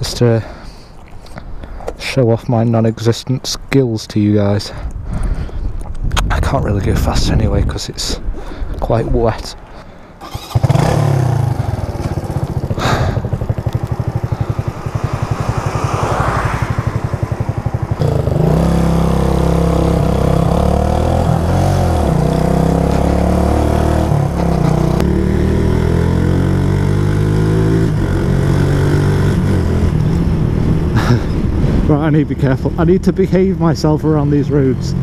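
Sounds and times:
motorcycle engine revving: 0:10.2 - 0:31.8.

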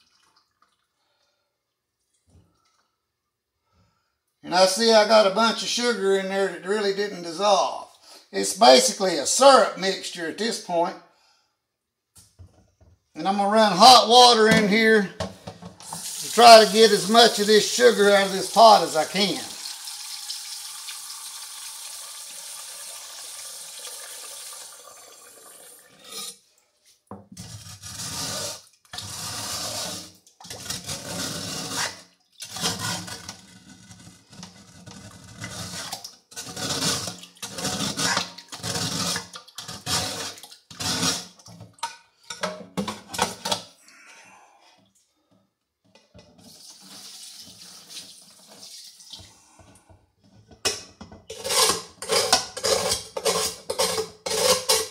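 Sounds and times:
water sloshing in a pot: 0:00.0 - 0:03.0
tap water running into metal pot: 0:15.8 - 0:26.3, 0:46.3 - 0:49.3.

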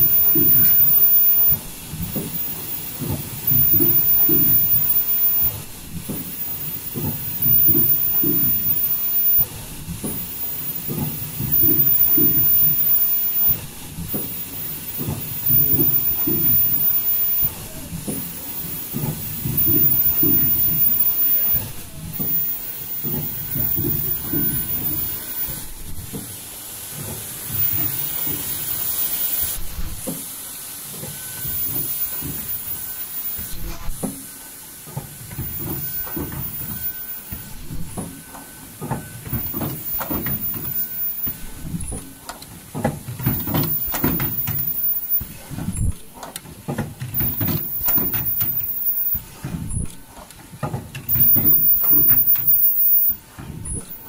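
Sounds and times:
high thin whine: 0:00.0 - 0:25.9
machine knocks and clacks: 0:00.0 - 0:30.3, 0:30.9 - 0:54.0
machine air hiss: 0:00.0 - 0:46.2, 0:47.1 - 0:50.2, 0:51.0 - 0:54.0.

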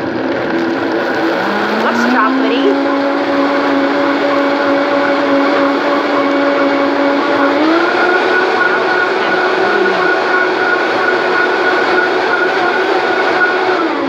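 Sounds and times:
blender motor running: 0:00.0 - 0:14.0.

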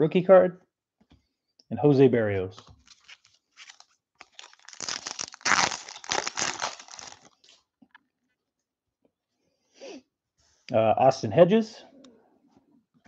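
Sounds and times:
wrapper crinkling being torn: 0:02.8 - 0:07.6.

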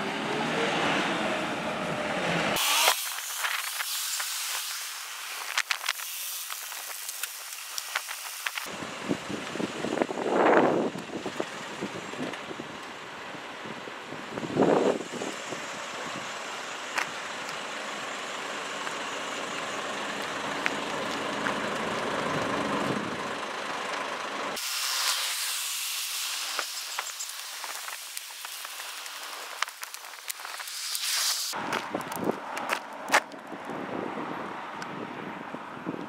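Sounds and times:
thin hiss: 0:02.6 - 0:08.7, 0:24.6 - 0:31.6.

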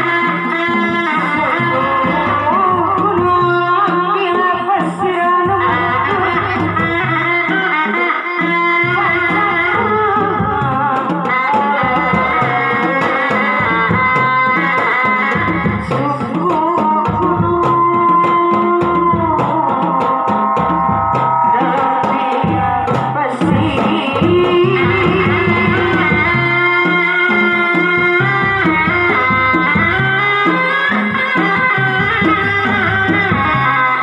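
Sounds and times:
drums beating fast rhythm: 0:00.0 - 0:34.0
long-held wavering melody: 0:18.7 - 0:34.0.

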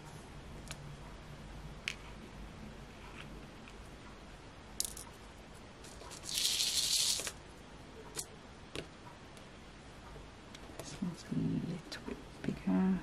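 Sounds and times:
gems rattling in plastic tray: 0:05.9 - 0:07.4.

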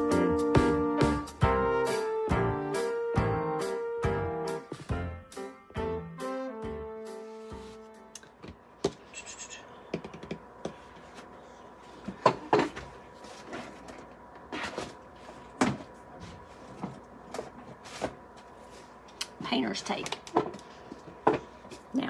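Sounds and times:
objects knocking and clattering: 0:12.0 - 0:12.9.

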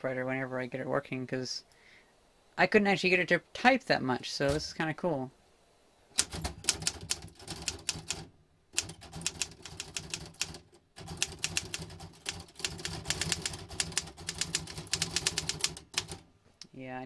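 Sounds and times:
manual typewriter clacking: 0:06.2 - 0:16.2.

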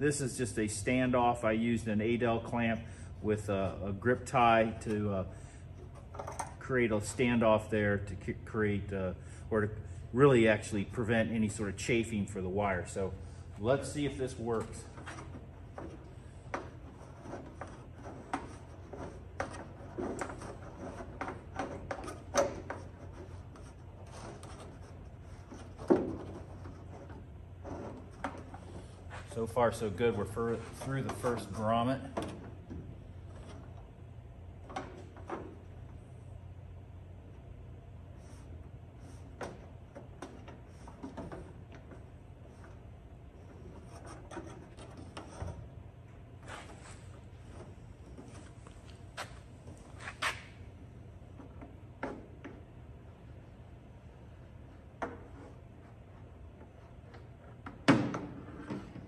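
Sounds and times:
low steady hum: 0:00.0 - 0:59.0
cable rubbing on aluminium: 0:14.6 - 0:29.4.

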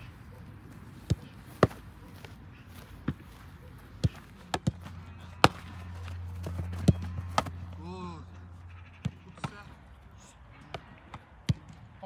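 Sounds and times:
footballs being kicked: 0:00.6 - 0:07.8.

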